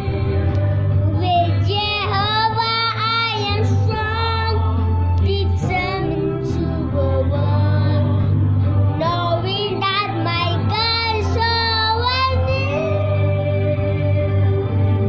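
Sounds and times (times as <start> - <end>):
recorded song with bass backing: 0.0 - 15.0
child singing: 1.1 - 8.2, 9.0 - 13.4.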